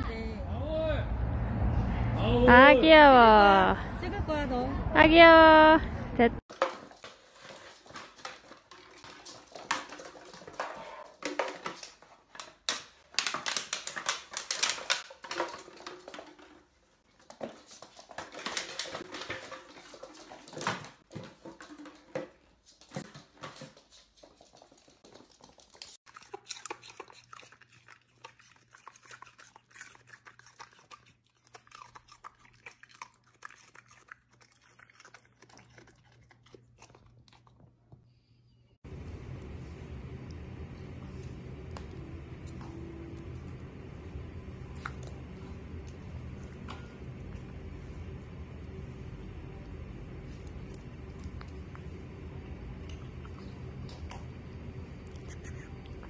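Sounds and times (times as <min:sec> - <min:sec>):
steady low hum: 0:38.8 - 0:56.0
puppy noises: 0:55.1 - 0:56.0.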